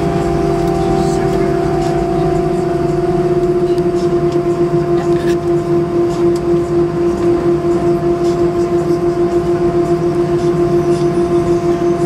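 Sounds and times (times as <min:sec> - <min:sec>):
jet engines idling in cabin: 0:00.0 - 0:12.0.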